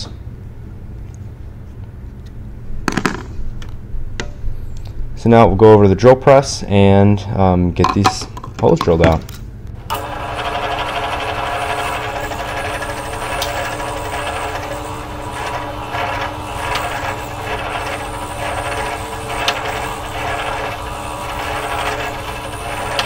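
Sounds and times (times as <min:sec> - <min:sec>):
drill bit cutting filler: 0:09.8 - 0:23.0
drill press motor hum: 0:09.8 - 0:23.0.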